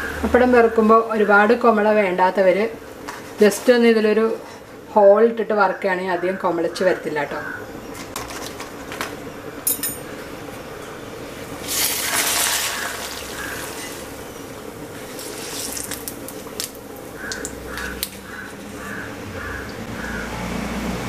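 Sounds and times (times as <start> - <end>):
oil crackling: 7.9 - 9.3, 11.4 - 19.8
food sizzling in hot oil: 11.4 - 18.9.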